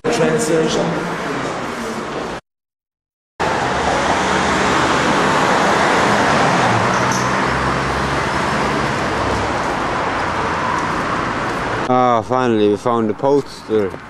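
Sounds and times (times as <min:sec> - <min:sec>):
loud rumbling noise: 0:03.4 - 0:11.9.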